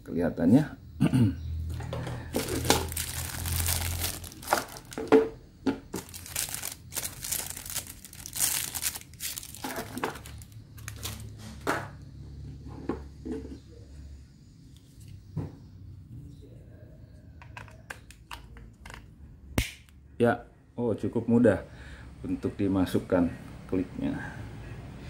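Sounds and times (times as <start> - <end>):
plastic bag crinkling: 2.3 - 5.3, 5.9 - 11.3.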